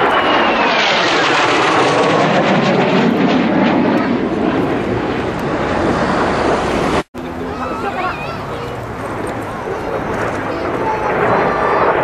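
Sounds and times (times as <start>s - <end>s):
jet whine falling in pitch: 0.0s - 8.4s
jet engines roaring overhead: 0.0s - 12.0s.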